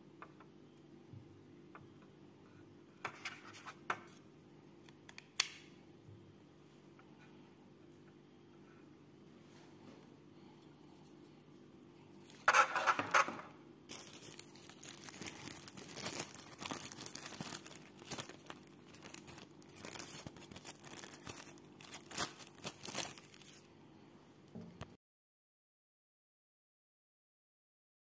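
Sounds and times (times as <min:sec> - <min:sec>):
paper crumpling: 0:13.9 - 0:23.7.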